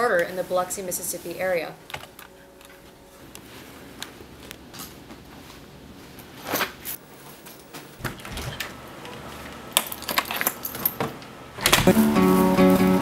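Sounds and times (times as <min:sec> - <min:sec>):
keys jingling: 0:09.8 - 0:11.0.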